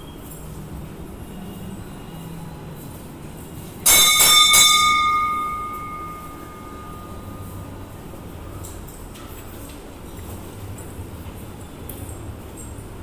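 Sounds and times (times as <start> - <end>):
temple bell ringing: 3.8 - 7.9.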